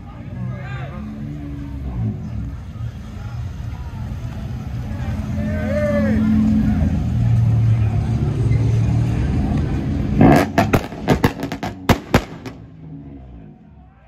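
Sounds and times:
exhaust pops and bangs: 10.2 - 12.7.

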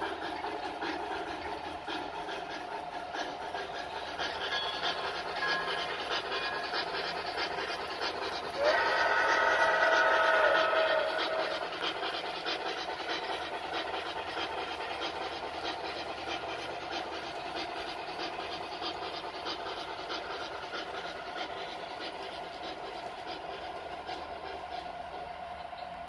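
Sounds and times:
model train wheels clattering: 0.0 - 26.0
model train whistle: 8.6 - 11.7.

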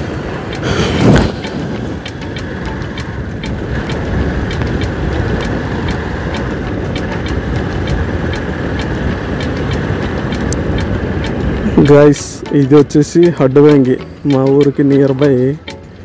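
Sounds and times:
motorcycle engine and road rumble: 0.0 - 16.0
wind on microphone: 0.0 - 16.0
small sharp ticks: 0.5 - 11.9.

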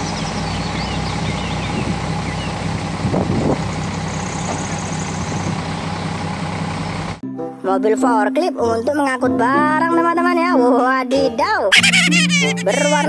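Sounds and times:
low engine-like hum: 0.0 - 7.2.

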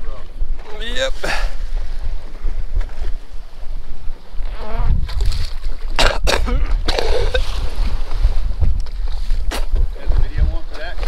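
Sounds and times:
man retching: 5.9 - 7.6.

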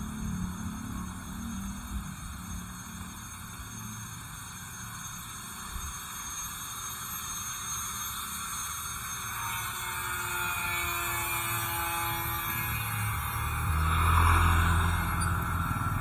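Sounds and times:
road noise hiss: 0.0 - 9.4, 10.4 - 16.0
traffic rumble: 12.7 - 16.0.

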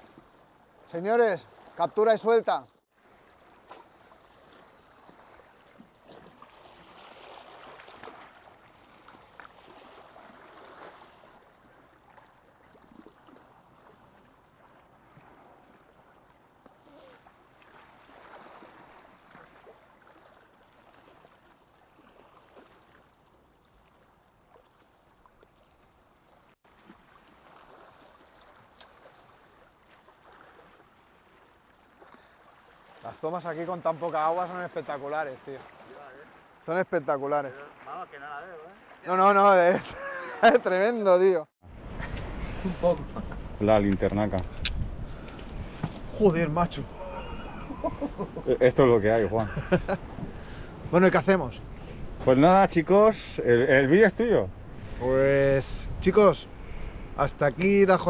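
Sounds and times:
small waves lapping against rocks: 0.0 - 41.3.

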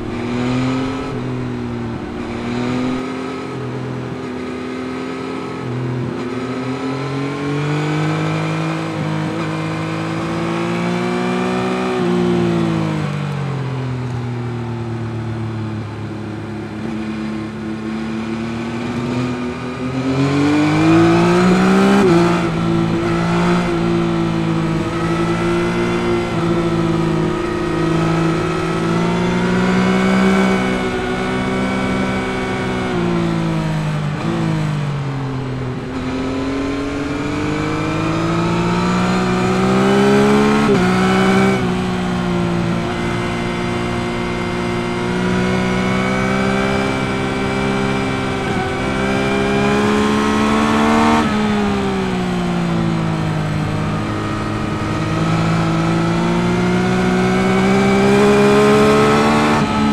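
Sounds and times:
motorcycle engine revving: 0.0 - 13.2, 15.8 - 59.9
gear change: 20.6 - 59.9.

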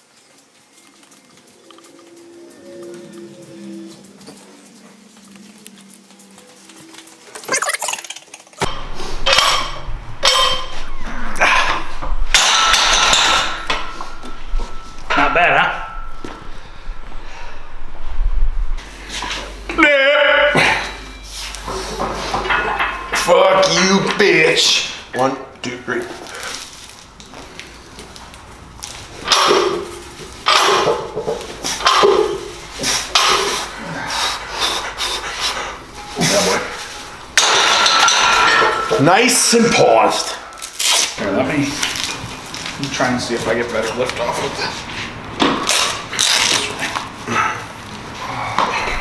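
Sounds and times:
barbell clanking and rattling: 8.7 - 10.8, 12.3 - 16.3, 29.2 - 32.5, 37.4 - 39.1.

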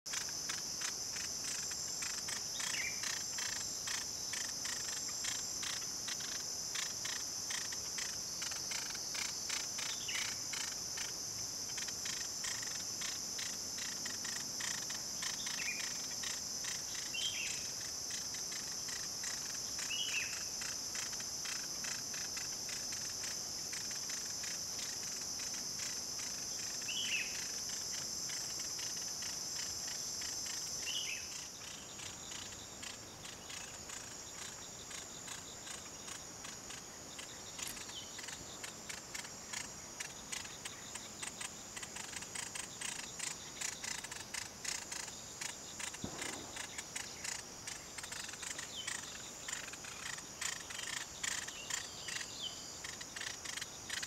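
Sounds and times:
insects droning: 0.1 - 54.0.

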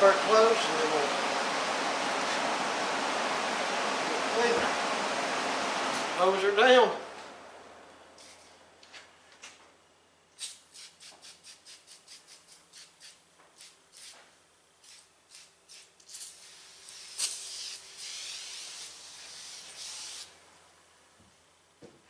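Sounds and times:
aerosol spray hissing: 14.8 - 20.3.

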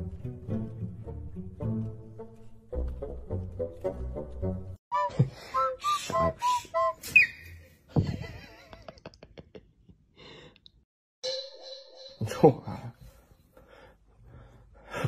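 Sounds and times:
short whistle-like notes: 4.9 - 7.7.

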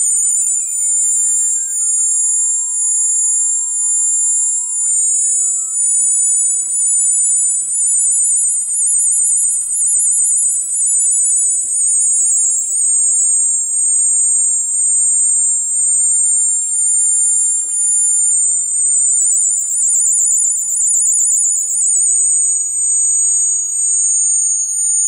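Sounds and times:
high-pitched warbling synthesizer tone: 0.0 - 23.0.

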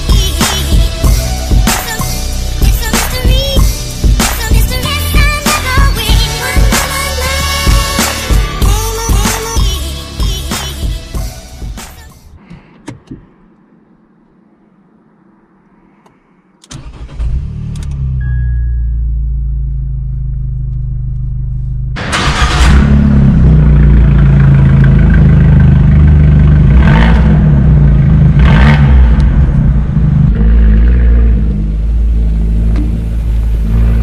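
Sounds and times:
car engine starting and idling: 11.3 - 34.0
engine revving: 21.9 - 34.0.

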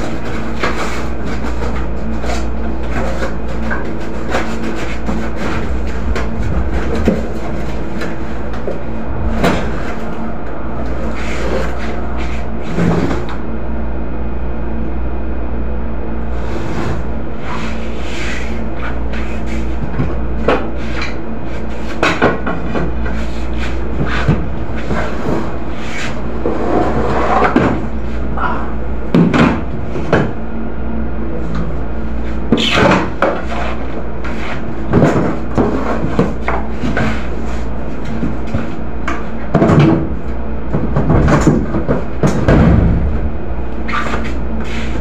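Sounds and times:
steady low hum: 0.0 - 45.0
crates knocking on wooden shelves: 40.7 - 43.4.

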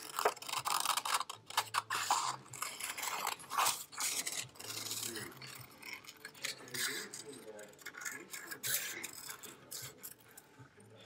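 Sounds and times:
scissors snipping paper: 0.0 - 10.2.

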